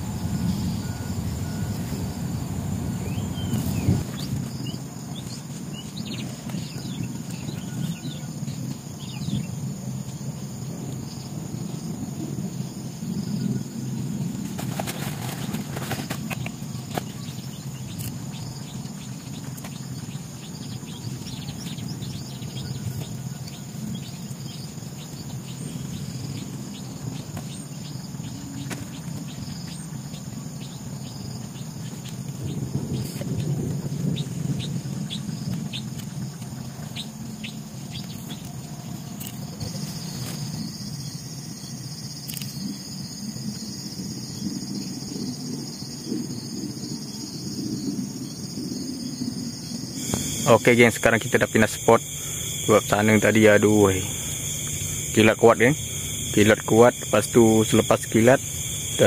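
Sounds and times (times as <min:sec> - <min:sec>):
low rumble: 0:00.0 - 0:06.0
high insect drone: 0:00.0 - 0:59.0.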